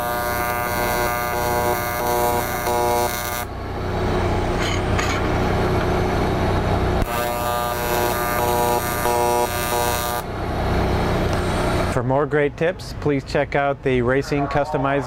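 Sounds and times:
welding arc buzzing: 0.0s - 4.6s, 5.4s - 11.9s
low engine hum: 3.4s - 7.0s, 9.6s - 14.4s.

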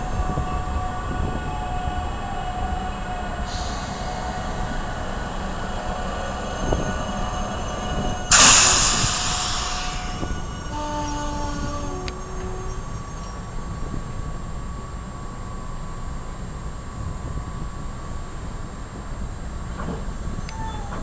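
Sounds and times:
faint squealing tones: 0.0s - 14.1s
train wheels rumbling: 0.0s - 21.0s
loud hiss: 3.4s - 13.8s.

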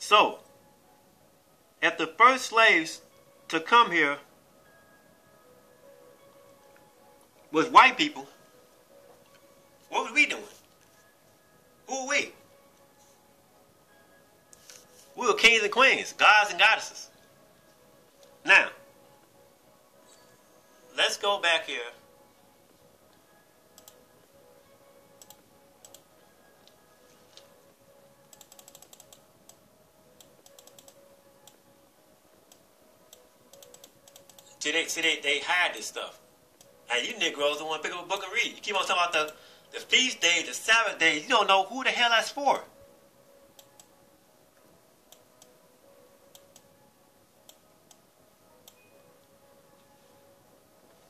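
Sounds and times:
faint steady hum: 0.0s - 41.0s
computer keys clicking: 23.8s - 24.0s, 25.2s - 26.0s, 28.3s - 29.6s, 30.2s - 31.6s, 32.5s - 34.6s, 43.6s - 43.9s, 46.3s - 46.7s.

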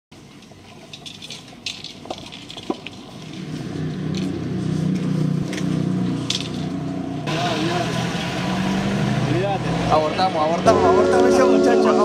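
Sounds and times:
car engine humming: 2.7s - 12.0s.

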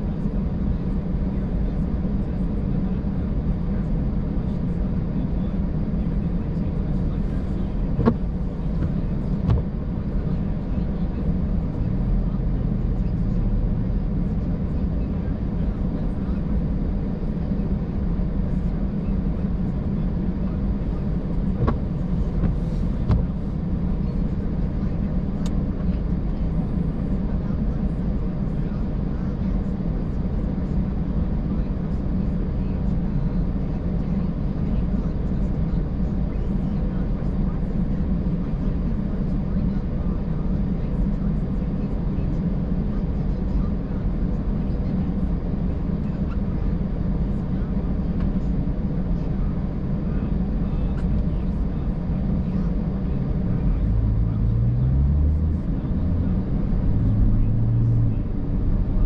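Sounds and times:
car engine and tyre noise: 4.3s - 28.4s, 52.0s - 59.0s.

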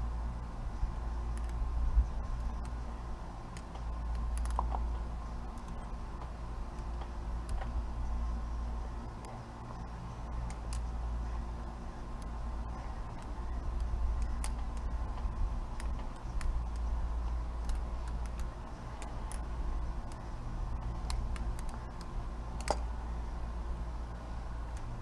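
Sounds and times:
low steady rumble: 0.0s - 25.0s
butterfly knife handles clicking: 1.2s - 1.6s, 3.5s - 7.8s, 10.4s - 10.9s, 13.0s - 22.9s.

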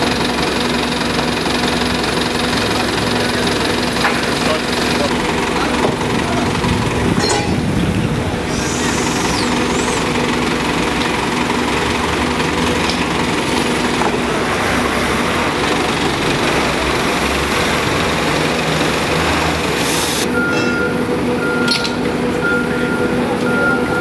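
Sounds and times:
boat machinery droning: 0.0s - 24.0s.

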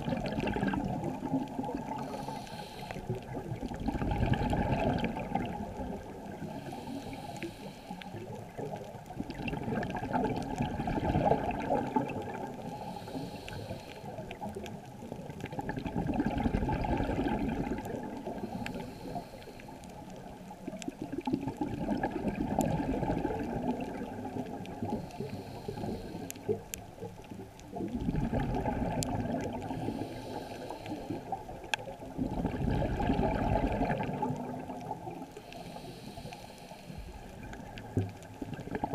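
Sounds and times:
exhaled bubbles: 0.0s - 7.2s, 8.0s - 35.8s, 36.9s - 38.9s
scuba regulator breathing: 1.6s - 3.4s, 6.4s - 8.5s, 11.9s - 14.4s, 17.5s - 20.2s, 24.8s - 26.8s, 29.6s - 31.7s, 35.3s - 37.8s.

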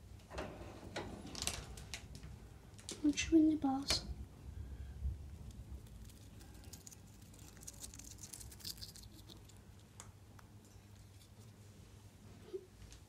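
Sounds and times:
hamster chewing leaf: 5.4s - 9.9s.

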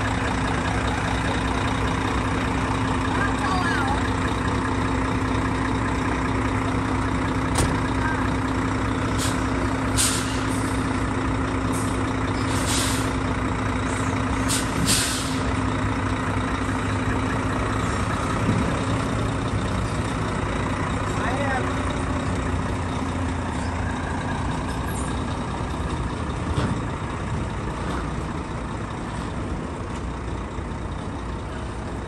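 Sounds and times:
diesel truck engine idling: 0.0s - 32.0s
air brake hisses: 9.2s - 10.8s, 11.8s - 13.2s, 14.4s - 15.5s.

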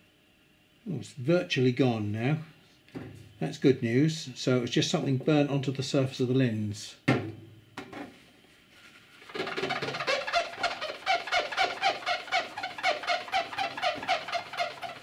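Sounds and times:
paper towel squeaking on lens: 8.7s - 15.0s.

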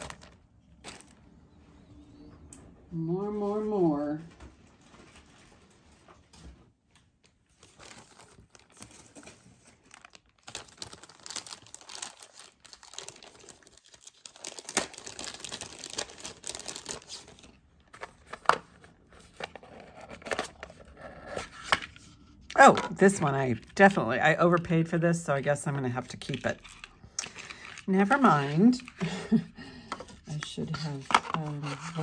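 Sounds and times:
packaging crinkling and rustling: 0.0s - 1.3s, 4.6s - 23.7s, 30.1s - 32.0s.

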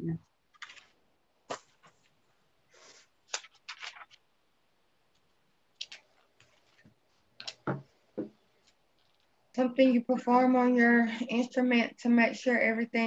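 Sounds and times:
faint clicks and taps: 5.1s - 9.4s.

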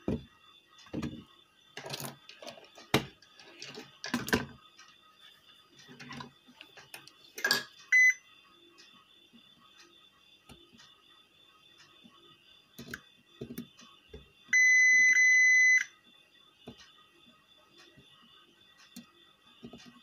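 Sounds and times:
tools knocking on workbench: 0.9s - 1.2s
multimeter short high beep: 7.9s - 8.2s, 14.6s - 15.9s.

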